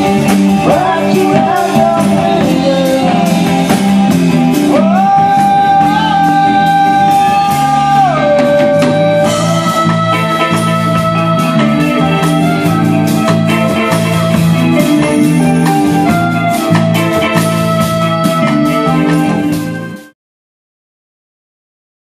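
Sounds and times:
lead vocal singing: 0.0s - 12.3s
rock band playing: 0.0s - 20.2s.

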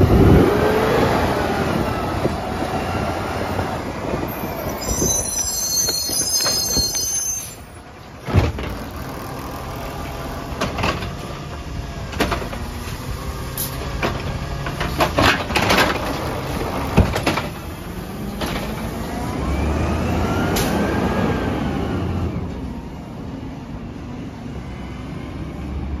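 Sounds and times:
high squeal: 4.3s - 7.9s.

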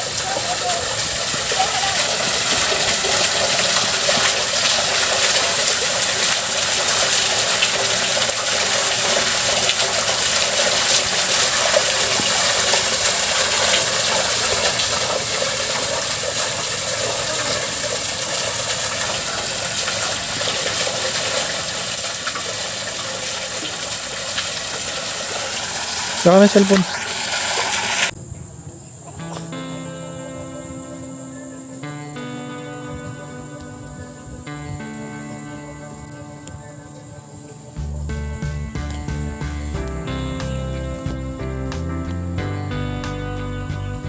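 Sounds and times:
fountain water pouring and splashing: 0.0s - 28.2s.

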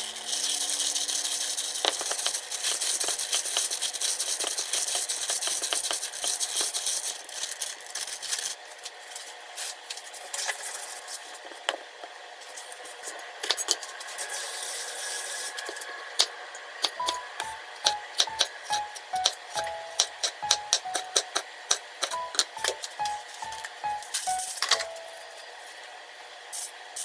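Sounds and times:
plastic glove crinkling and squelching: 0.0s - 11.4s.

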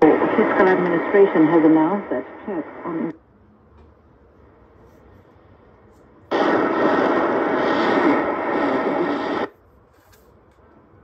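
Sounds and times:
radio static rush: 0.0s - 3.1s, 6.3s - 9.5s.

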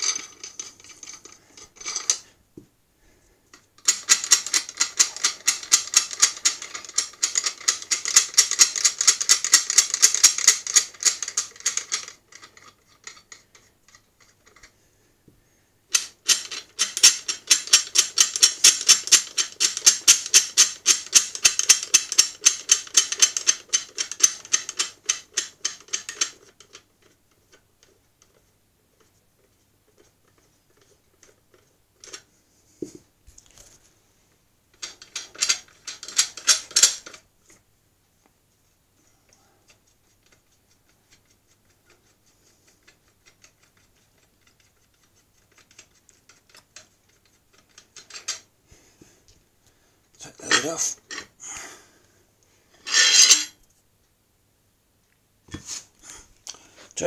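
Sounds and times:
metal nuts clicking on threaded rods: 3.8s - 14.7s, 15.9s - 26.8s, 34.8s - 37.2s, 52.8s - 53.5s.

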